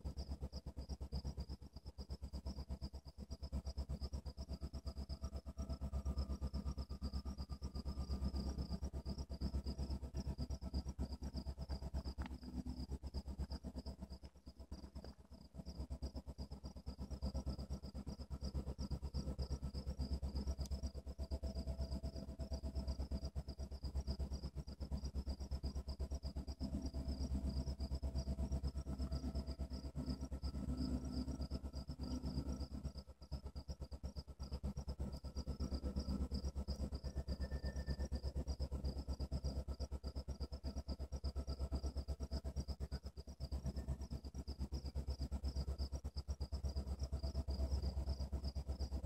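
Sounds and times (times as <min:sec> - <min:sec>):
insects chirping: 0:00.0 - 0:49.0
steady low rumble: 0:05.0 - 0:25.4.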